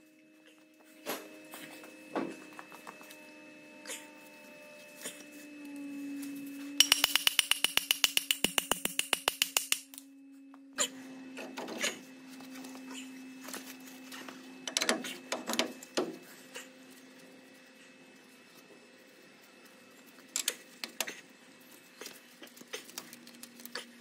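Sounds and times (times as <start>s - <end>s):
steady low hum: 0.0s - 24.0s
rapid hammer taps on steel: 6.8s - 10.0s.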